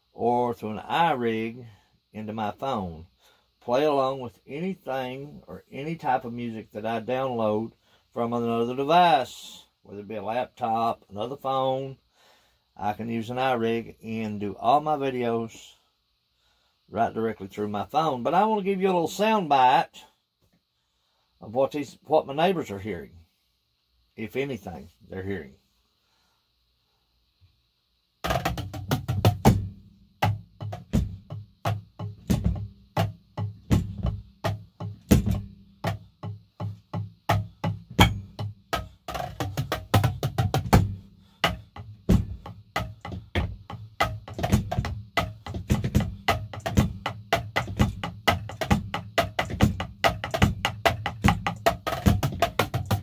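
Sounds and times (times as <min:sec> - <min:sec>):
drumsticks tapping drum pads: 0:28.2 - 0:53.0.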